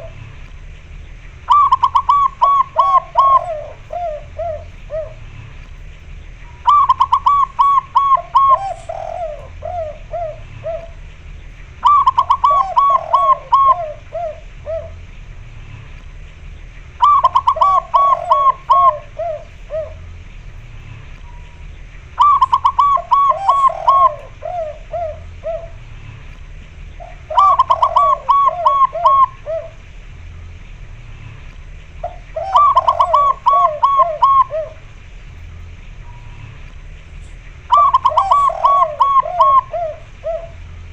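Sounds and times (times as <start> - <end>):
dove cooing: 0.0 - 40.9.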